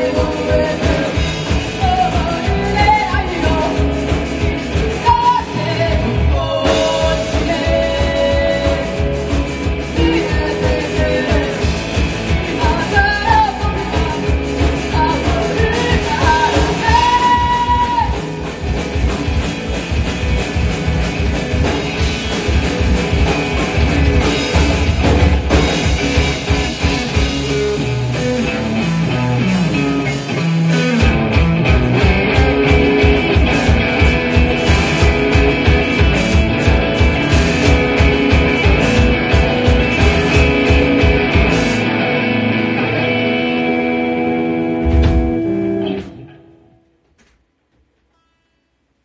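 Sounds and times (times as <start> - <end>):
person singing: 0.0 - 4.1, 4.9 - 18.6
rock band playing live: 0.0 - 46.8.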